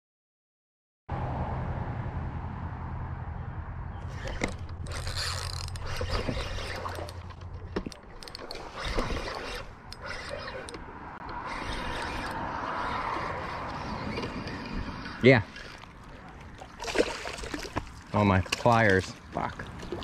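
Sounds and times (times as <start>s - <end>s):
fishing reel whirring and clicking: 4.1s - 16.1s.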